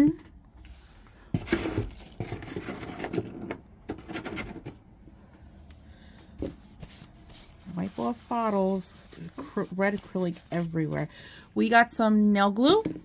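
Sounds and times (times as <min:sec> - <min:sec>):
plastic bottles and packaging handled: 0:00.2 - 0:04.9, 0:06.3 - 0:11.2.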